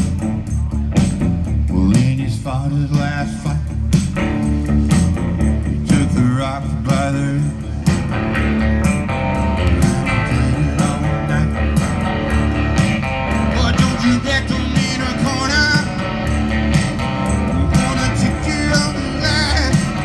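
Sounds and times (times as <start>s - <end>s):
bass line: 0.0s - 20.0s
drums: 0.0s - 20.0s
electric guitar: 0.0s - 20.0s
person singing: 10.0s - 12.3s, 13.4s - 16.1s, 17.4s - 20.0s.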